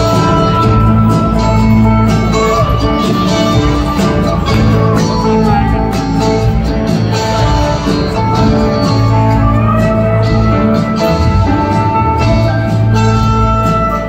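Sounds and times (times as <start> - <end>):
electric guitar lines: 0.0 - 14.0
live rock band playing: 0.0 - 14.0.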